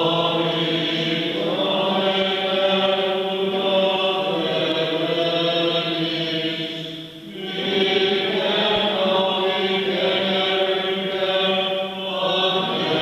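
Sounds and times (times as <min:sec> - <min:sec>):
liturgical chant: 0:00.0 - 0:13.0.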